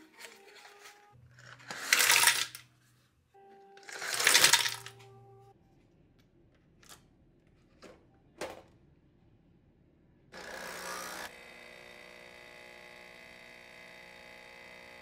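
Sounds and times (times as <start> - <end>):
metal capsules clattering into jar: 1.4 - 2.6, 3.9 - 5.0
soft background music: 2.6 - 5.9.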